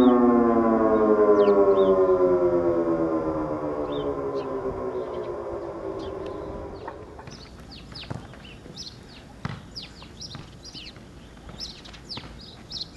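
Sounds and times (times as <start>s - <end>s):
electronic siren howl: 0.0s - 7.6s
small birds chirping: 1.3s - 2.2s, 3.8s - 12.9s.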